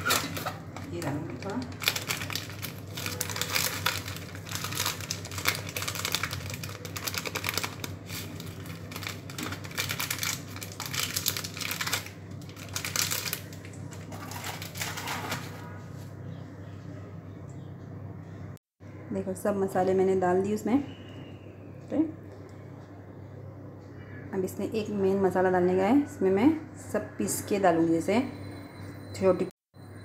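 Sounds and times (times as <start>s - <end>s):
spice packet crinkling: 1.2s - 15.6s.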